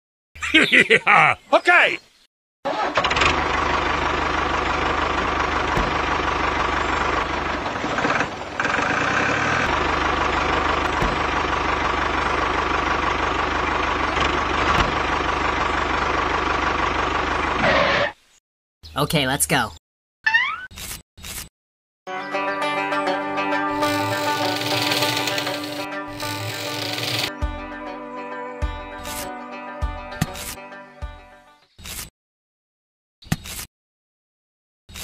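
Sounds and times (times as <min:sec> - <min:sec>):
tractor engine running: 0:02.7 - 0:18.1, 0:23.8 - 0:27.4.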